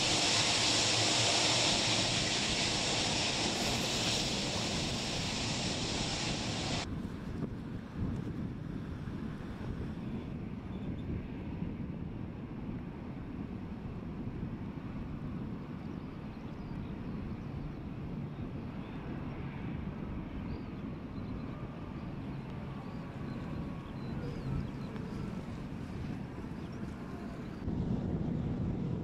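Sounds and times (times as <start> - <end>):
jet engines at low power: 0.0 - 29.0.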